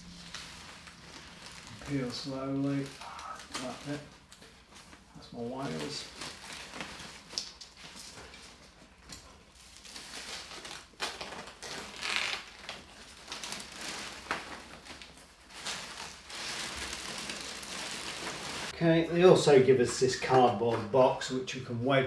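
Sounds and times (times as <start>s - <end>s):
plastic sheet rustling and crinkling: 0.0s - 20.9s
tape peeling: 5.6s - 18.7s.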